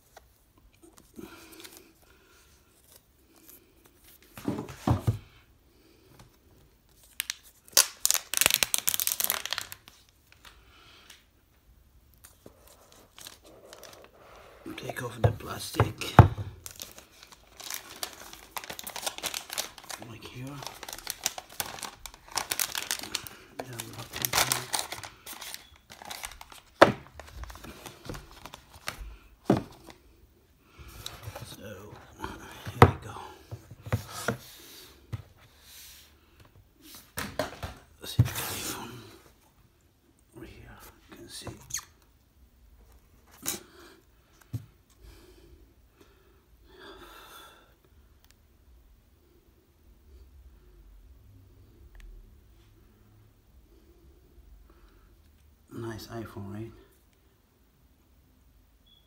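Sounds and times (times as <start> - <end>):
plastic wrap tearing and crinkling: 7.0 - 10.6, 16.6 - 29.0.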